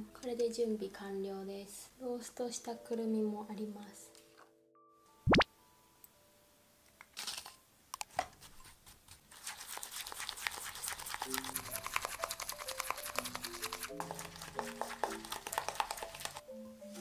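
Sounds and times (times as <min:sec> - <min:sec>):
soft background music: 0:00.0 - 0:07.9, 0:10.8 - 0:17.0
falling-pitch blip: 0:05.3 - 0:05.5
spatula scraping glass bowl: 0:09.7 - 0:16.4
rustle and clicks into bowl: 0:11.2 - 0:17.0.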